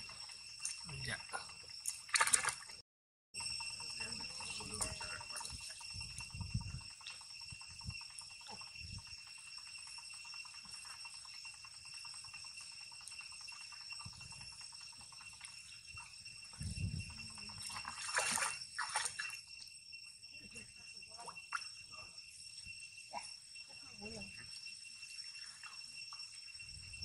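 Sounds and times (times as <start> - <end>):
monkeys splashing in water: 1.9 - 2.8, 17.3 - 19.5
steady high-pitched whine: 3.4 - 27.0.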